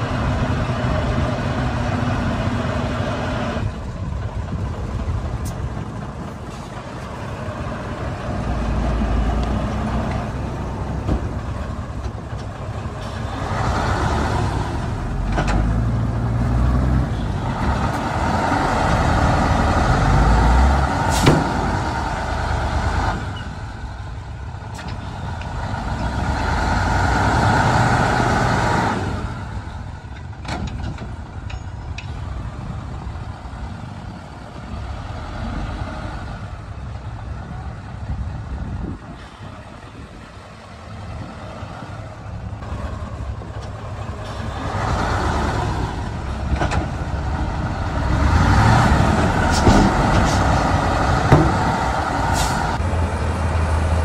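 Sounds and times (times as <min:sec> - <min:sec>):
diesel engine rumble: 0:00.0 - 0:54.0
sharp knocks: 0:51.3 - 0:51.8.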